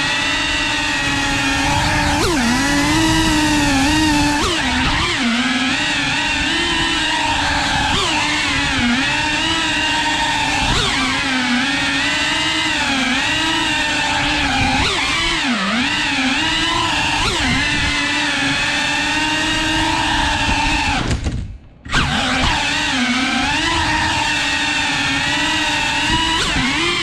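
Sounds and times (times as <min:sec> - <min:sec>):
quadcopter motors whining: 0:00.0 - 0:27.0.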